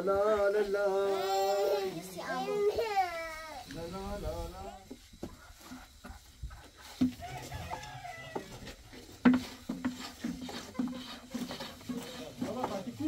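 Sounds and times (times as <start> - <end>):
chickens clucking: 3.7 - 13.0.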